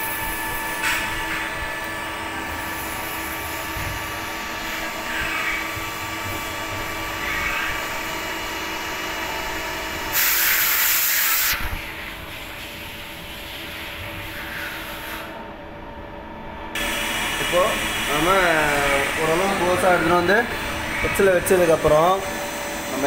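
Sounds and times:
lathe humming: 0.0 - 10.1, 16.8 - 23.0
loud hiss: 10.1 - 11.8, 16.8 - 23.0.

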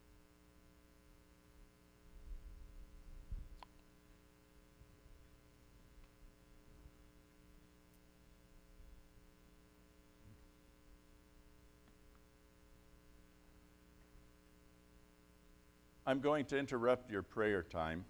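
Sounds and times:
faint electrical hum: 0.0 - 18.0
faint ticks: 2.8 - 4.0, 5.9 - 6.4, 7.6 - 8.2, 11.2 - 12.4.

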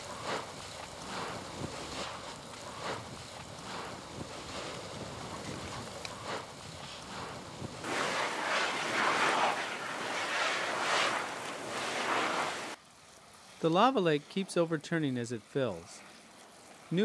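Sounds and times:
wind on microphone: 0.0 - 12.8
lava gushing and spattering: 0.0 - 13.6.

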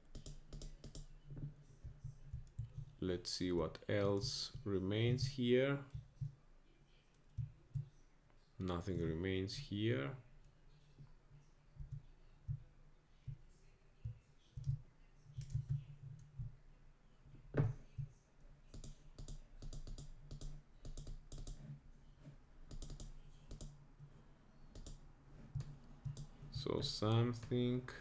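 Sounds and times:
computer keys clicking: 0.0 - 1.2, 15.4 - 16.3, 18.7 - 21.6, 22.7 - 23.8, 24.7 - 25.0, 25.6 - 26.3.

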